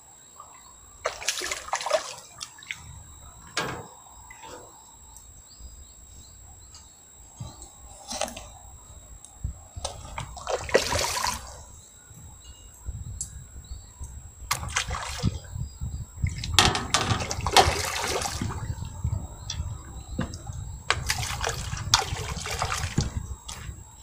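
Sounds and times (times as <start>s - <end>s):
fish splashing at water surface: 1.0s - 2.9s, 10.3s - 11.6s, 14.5s - 15.4s, 16.6s - 18.7s, 20.9s - 23.7s.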